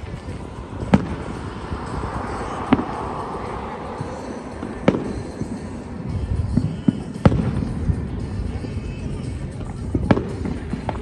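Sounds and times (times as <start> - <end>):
distant firework booms: 0.1 - 3.2, 4.6 - 5.6, 6.3 - 8.2.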